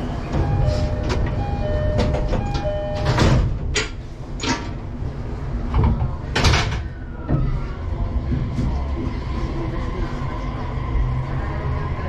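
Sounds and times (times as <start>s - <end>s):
train car low rumble: 0.0s - 12.0s
door chime tones: 0.4s - 3.4s.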